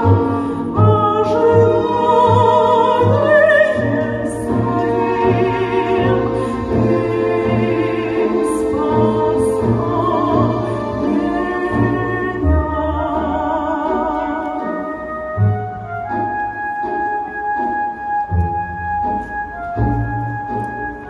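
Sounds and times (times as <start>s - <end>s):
woman singing operatically: 0.0s - 15.0s
orchestral accompaniment: 0.0s - 21.0s.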